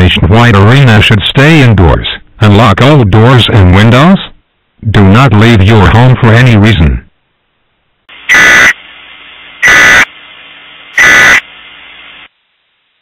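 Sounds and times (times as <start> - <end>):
faint steady hiss: 0.0 - 13.0
raspy digital data bursts: 8.2 - 8.8, 9.6 - 10.1, 10.9 - 12.3.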